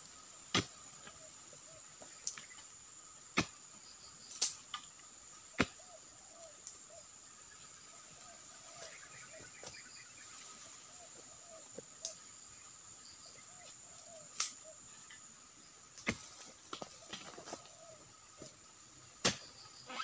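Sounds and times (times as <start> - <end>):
high insect drone: 0.0 - 20.0
faint bird chirps: 5.5 - 15.2
steel blade chopping into soil: 19.2 - 19.4.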